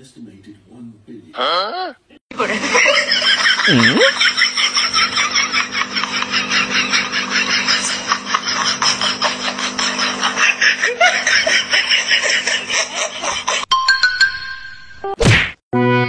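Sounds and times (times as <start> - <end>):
breathy laughter: 2.3 - 13.7.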